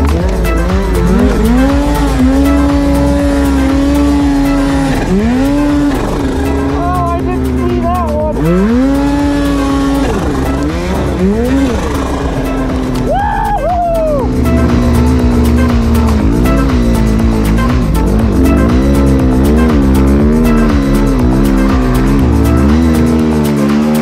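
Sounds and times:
snowmobile engine revving: 0:00.0 - 0:24.0.

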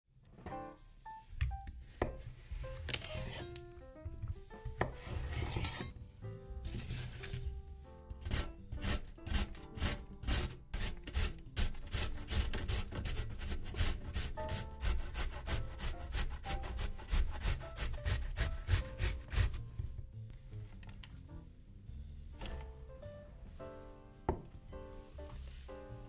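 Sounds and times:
soft background music: 0:00.1 - 0:26.0
zucchini grated on metal grater: 0:08.2 - 0:19.6.

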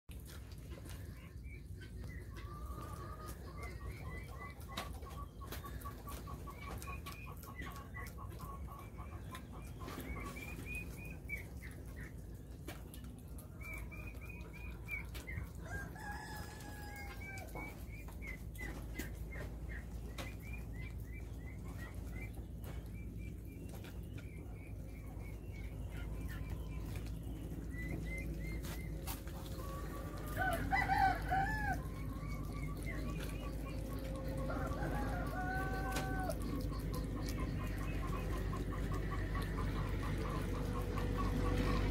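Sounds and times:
chickens clucking: 0:00.1 - 0:41.9
rooster crowing: 0:15.6 - 0:17.5, 0:30.3 - 0:31.8, 0:34.2 - 0:36.5.

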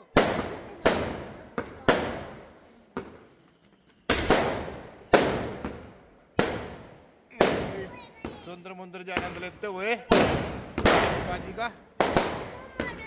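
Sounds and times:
fireworks bangs with echo: 0:00.0 - 0:03.3, 0:04.1 - 0:13.0
faint firework pops: 0:00.1 - 0:08.5.

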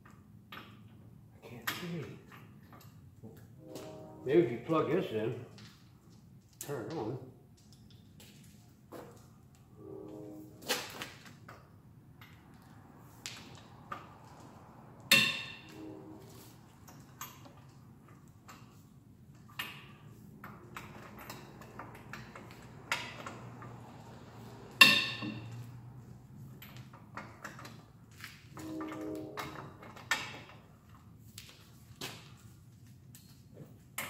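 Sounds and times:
loud ringing metal clangs: 0:15.1 - 0:16.5, 0:20.8 - 0:25.8.

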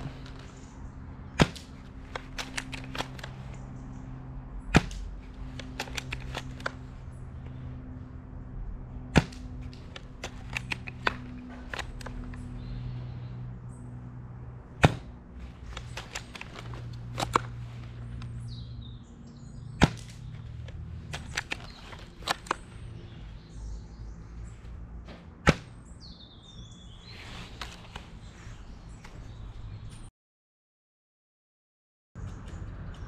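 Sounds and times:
rifle bolt clicks: 0:01.5 - 0:03.6, 0:04.8 - 0:06.8, 0:09.3 - 0:12.5, 0:15.6 - 0:17.6, 0:19.9 - 0:22.6.

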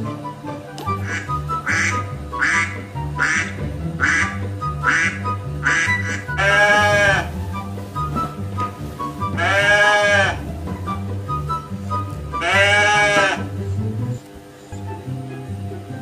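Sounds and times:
background music: 0:00.0 - 0:16.0
duck quacks: 0:01.0 - 0:07.4, 0:09.4 - 0:10.5, 0:12.4 - 0:13.6.

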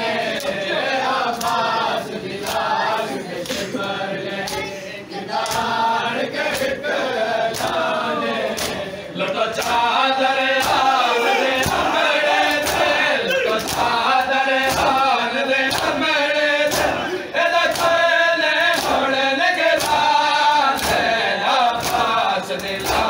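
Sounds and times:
men chanting in unison: 0:00.0 - 0:23.0
hands slapping chests: 0:01.3 - 0:01.7, 0:02.4 - 0:02.7, 0:03.4 - 0:03.8, 0:04.4 - 0:04.6, 0:05.4 - 0:05.8, 0:07.5 - 0:07.9, 0:08.5 - 0:09.9, 0:10.6 - 0:16.0, 0:16.6 - 0:18.0, 0:18.7 - 0:19.1, 0:19.8 - 0:23.0.

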